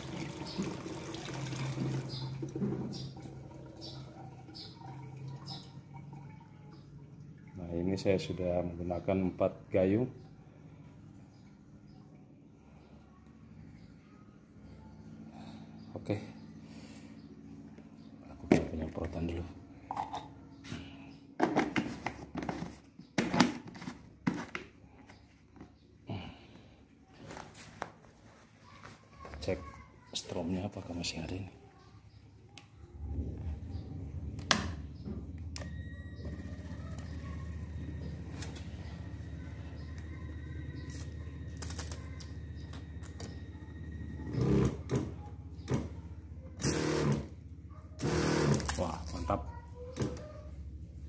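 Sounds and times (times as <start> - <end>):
steady low hum: 31.7 - 51.0
sprayer pump buzzing in spurts: 46.6 - 47.3, 48.0 - 48.8.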